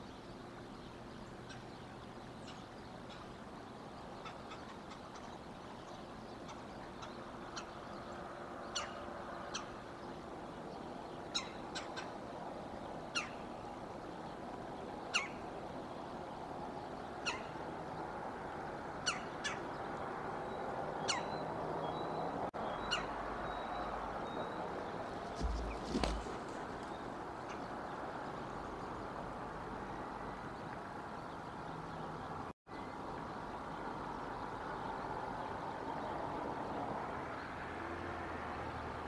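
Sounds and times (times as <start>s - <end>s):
steady outdoor hiss: 0.0s - 39.0s
bird calling: 1.3s - 3.4s, 8.7s - 9.8s, 13.1s - 13.5s, 15.1s - 15.4s, 17.2s - 17.6s, 19.0s - 19.7s, 21.0s - 21.4s, 22.0s - 27.7s.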